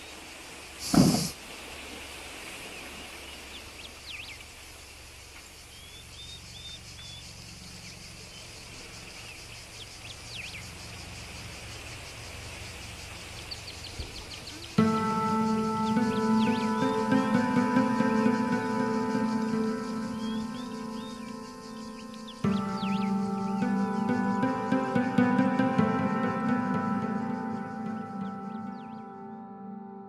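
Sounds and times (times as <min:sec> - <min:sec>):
pulsing insect chirring: 0:04.8 - 0:29.5
bird chirps: 0:05.7 - 0:11.0, 0:13.1 - 0:29.8.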